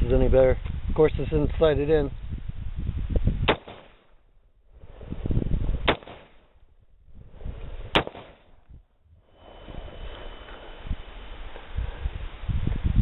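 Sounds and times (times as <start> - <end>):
rifle shots: 3.5 - 4.1, 5.8 - 6.4, 7.9 - 8.6.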